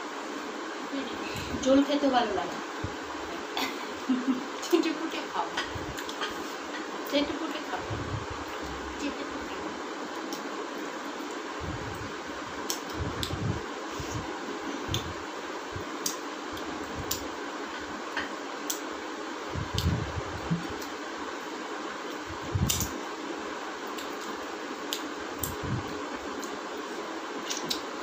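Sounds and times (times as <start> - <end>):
fan noise: 0.0 - 28.0
lip smacks: 27.4 - 27.9.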